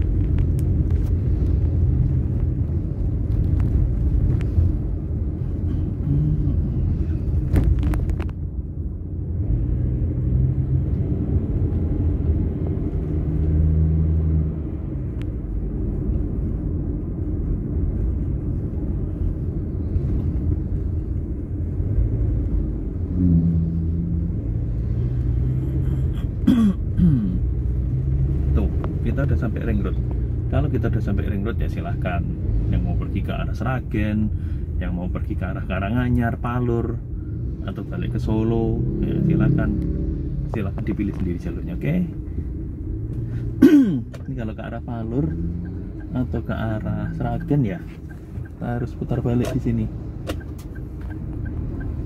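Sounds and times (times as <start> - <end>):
car engine and road rumble: 0.0 - 52.0.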